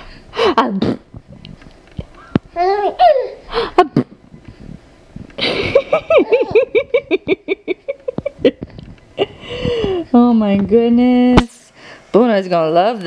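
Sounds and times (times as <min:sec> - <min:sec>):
baby laughing: 0:02.6 - 0:04.1, 0:05.5 - 0:08.3.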